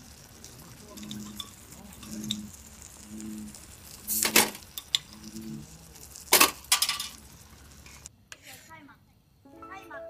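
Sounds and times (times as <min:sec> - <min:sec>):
beer bottle opening: 0:03.5 - 0:07.3.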